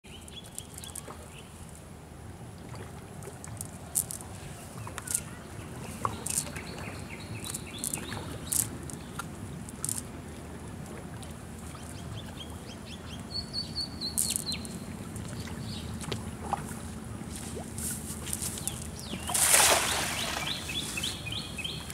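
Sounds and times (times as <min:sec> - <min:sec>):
small birds chirping: 0:00.1 - 0:01.6, 0:03.9 - 0:10.0, 0:11.8 - 0:16.0, 0:18.4 - 0:21.9
low outdoor rumble: 0:00.1 - 0:21.9
net and grass rustling: 0:03.4 - 0:06.7, 0:07.4 - 0:10.1, 0:16.7 - 0:21.9.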